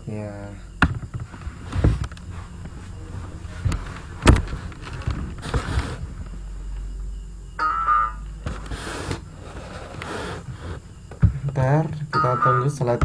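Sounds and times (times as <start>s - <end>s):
low background noise: 0.0s - 13.0s
scattered knocks and clicks: 0.8s - 2.8s, 3.6s - 6.4s.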